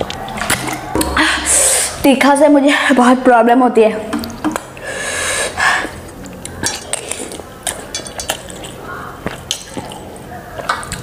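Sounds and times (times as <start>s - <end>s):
cutlery clinking on a metal bowl: 6.6s - 10.0s.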